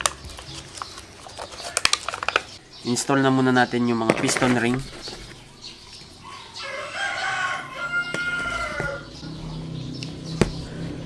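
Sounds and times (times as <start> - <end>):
rooster crowing: 6.2 - 9.2.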